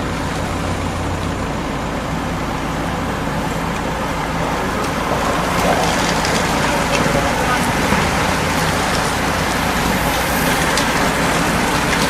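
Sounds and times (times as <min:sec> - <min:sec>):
racing bicycles rushing past: 0:03.5 - 0:12.0.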